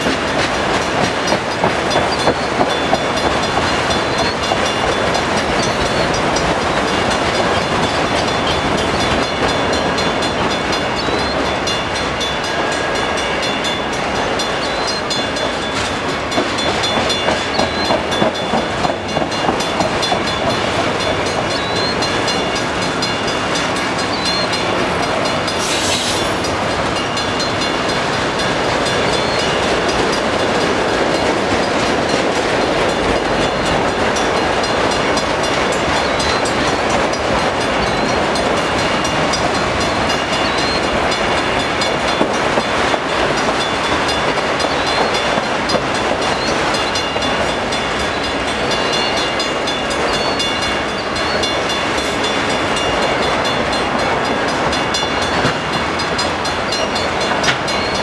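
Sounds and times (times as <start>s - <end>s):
steel wheels rumbling on rail: 0.0s - 58.0s
brief high hiss: 25.6s - 26.3s.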